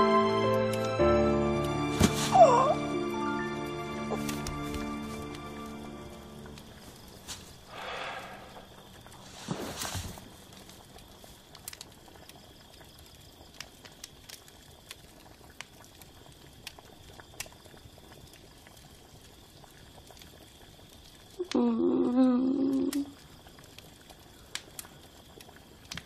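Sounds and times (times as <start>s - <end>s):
faint steady hiss: 0.0s - 26.0s
soft clicks and crackles: 8.5s - 21.6s, 22.6s - 26.0s.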